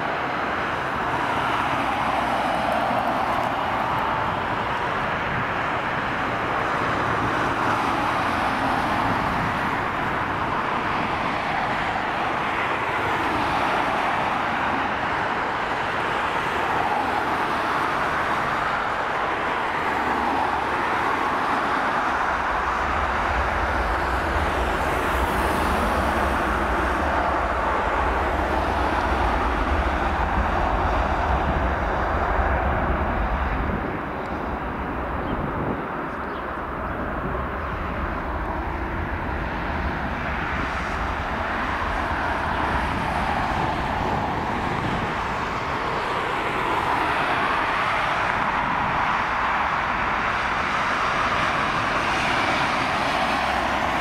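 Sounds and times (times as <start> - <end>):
jet engines running: 0.0 - 54.0
deep rumble of takeoff roll: 18.0 - 54.0.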